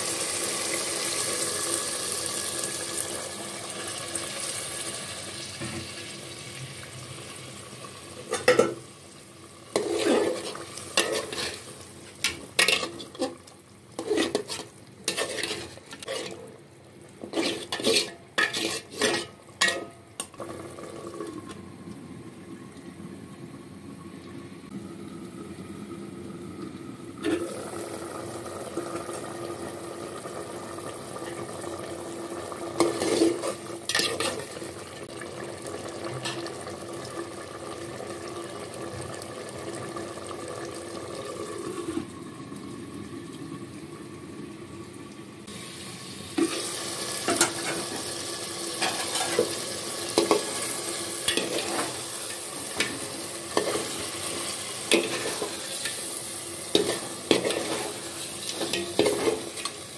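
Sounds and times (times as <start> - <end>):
curry sizzling and bubbling: 0.0 - 59.9
utensil scraping metal pot: 9.7 - 13.4, 14.0 - 16.5, 17.2 - 19.9, 32.8 - 34.5, 48.8 - 49.6, 50.2 - 56.1, 56.7 - 59.8.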